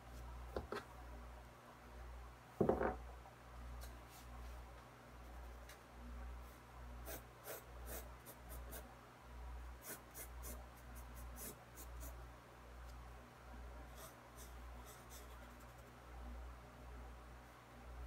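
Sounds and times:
pencil sketching on paper: 7.1 - 8.8, 9.8 - 12.2, 13.9 - 15.8.

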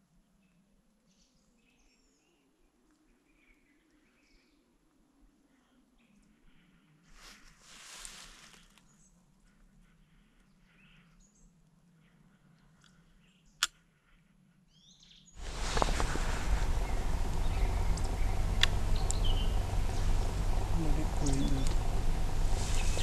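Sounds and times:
faint bird chirps: 8.4 - 23.0
steady hiss with low hum: 15.4 - 23.0.

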